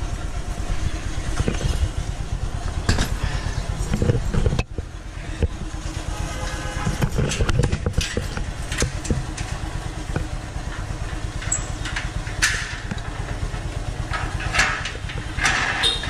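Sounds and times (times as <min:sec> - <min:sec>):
scooter engine idling: 0:00.0 - 0:16.0
metal gate clanking and rattling: 0:05.9 - 0:16.0.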